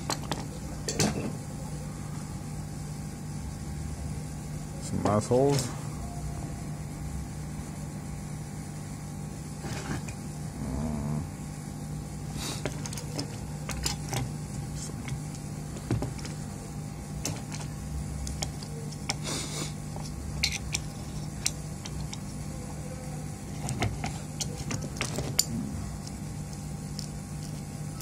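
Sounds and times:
steady low hum: 0.0 - 28.0
hand tools clicking and tapping: 17.2 - 19.2, 23.6 - 28.0.

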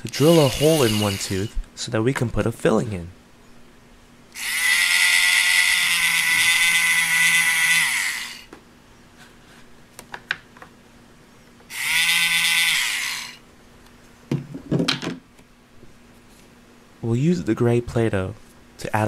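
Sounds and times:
toy drill whirring: 0.0 - 1.6, 4.4 - 8.5, 11.7 - 13.4.

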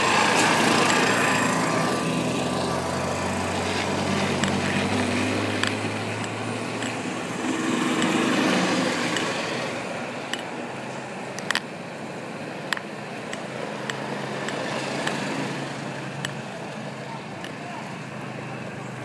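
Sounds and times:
vehicle engine running: 0.0 - 19.0
wet street noise: 0.0 - 19.0
pendant tapping on device: 5.5 - 7.1, 11.3 - 11.7, 12.7 - 15.2, 16.2 - 16.4.

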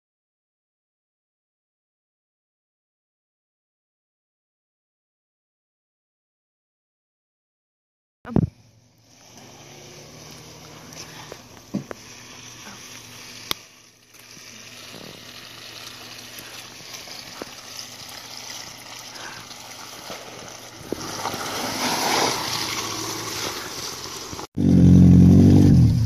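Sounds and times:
car engine running at low speed: 8.3 - 21.8, 22.4 - 26.0
tyres sloshing through mud: 9.1 - 24.5
loud engine running close by: 22.5 - 26.0.

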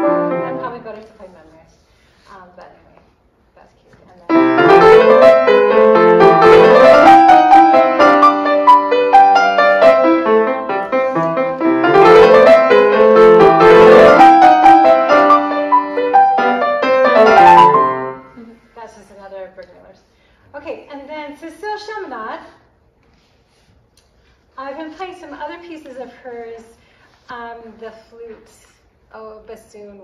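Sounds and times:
solo grand piano piece: 0.0 - 0.9, 4.3 - 18.4.

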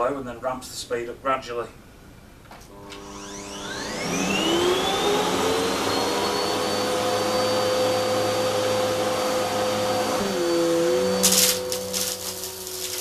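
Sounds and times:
vacuum cleaner motor whine: 2.7 - 13.0.

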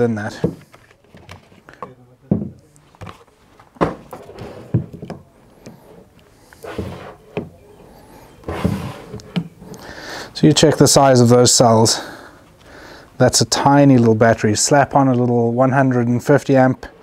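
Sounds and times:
cardboard box scraping and rustling: 8.3 - 9.2.

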